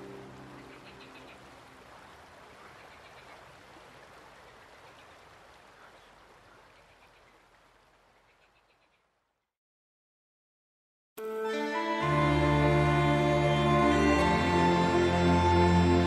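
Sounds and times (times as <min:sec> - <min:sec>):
faint water noise: 0:00.0 - 0:09.4.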